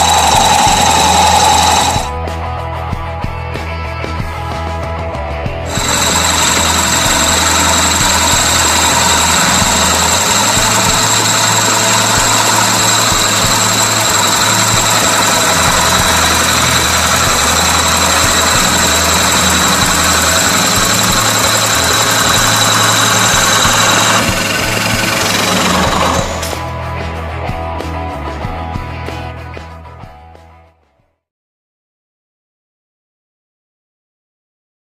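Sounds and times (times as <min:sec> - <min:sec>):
drill press whining: 0:00.0 - 0:02.1, 0:05.7 - 0:26.6.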